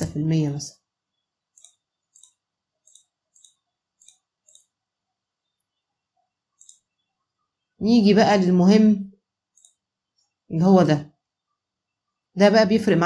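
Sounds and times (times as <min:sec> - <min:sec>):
faint computer mouse clicks: 0:01.6 - 0:04.8, 0:06.6 - 0:06.9, 0:09.6 - 0:09.8.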